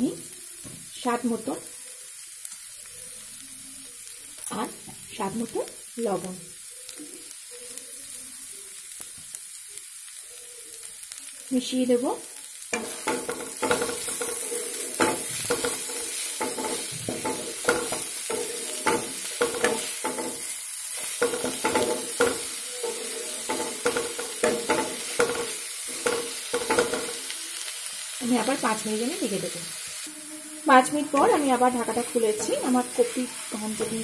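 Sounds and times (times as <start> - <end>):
vegetables sizzling: 0.0 - 34.0
wooden spatula scraping a pan: 12.8 - 27.0.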